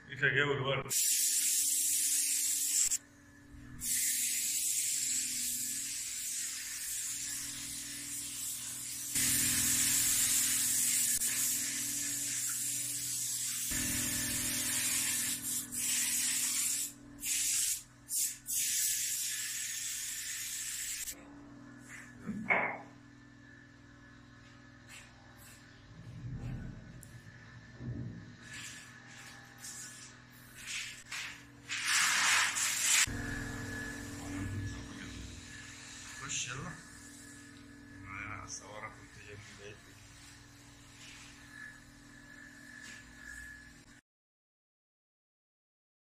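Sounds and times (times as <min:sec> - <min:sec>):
spray paint can hissing: 0:00.9 - 0:03.0, 0:03.8 - 0:21.2, 0:30.7 - 0:33.1.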